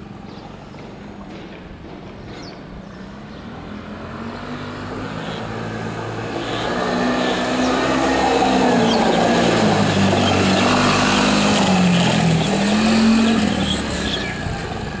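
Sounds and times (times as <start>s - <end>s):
small quad bike engine: 3.3s - 15.0s.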